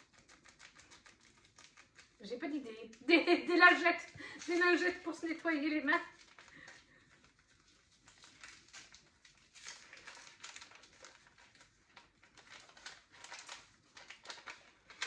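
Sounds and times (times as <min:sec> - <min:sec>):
packaging rustling and crackling: 0:04.0 - 0:15.0.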